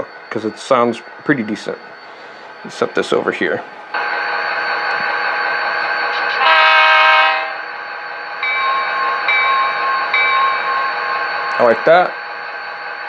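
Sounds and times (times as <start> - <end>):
diesel locomotive idle: 0.0 - 6.6, 7.6 - 13.0
locomotive horn blast: 6.1 - 7.6
bell rings: 8.4 - 12.8.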